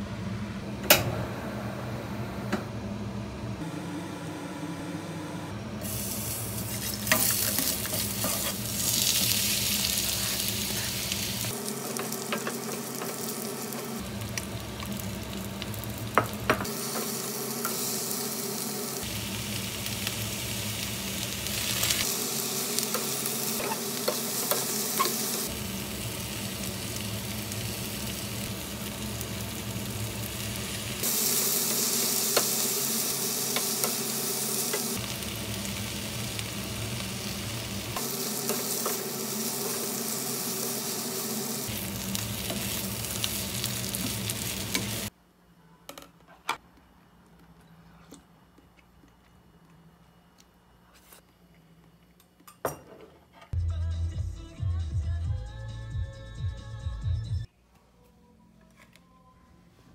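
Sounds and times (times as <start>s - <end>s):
food sizzling in hot oil: 5.8s - 45.1s.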